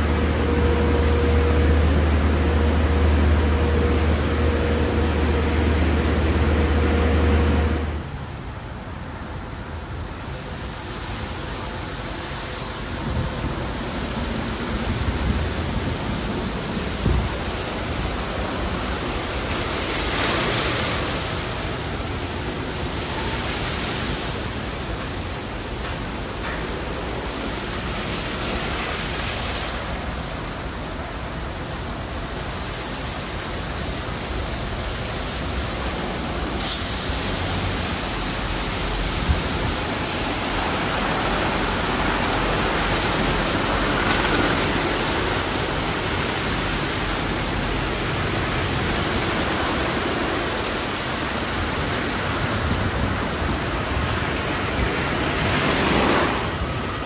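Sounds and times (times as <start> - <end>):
water sprays and blowers rushing: 0.0 - 57.0
short sharp hiss: 36.4 - 37.6.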